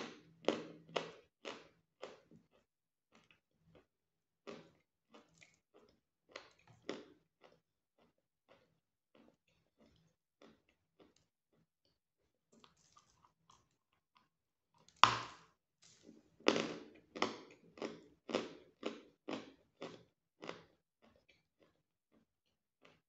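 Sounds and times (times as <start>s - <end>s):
croutons crunching while chewed: 4.5s - 11.7s, 12.6s - 14.3s, 15.8s - 23.0s.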